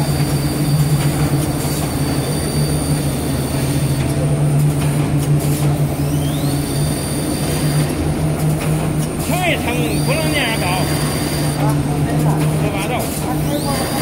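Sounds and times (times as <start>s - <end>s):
packing machine hum and whine: 0.0s - 14.0s.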